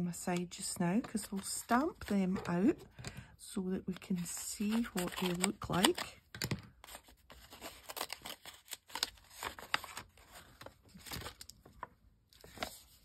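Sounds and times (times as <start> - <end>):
paper envelope rustling and crinkling: 4.2 - 13.0.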